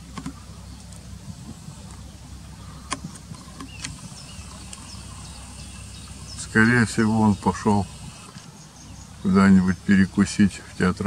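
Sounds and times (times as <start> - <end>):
low outdoor rumble: 0.0 - 11.0
sharp clicks: 2.9 - 5.0.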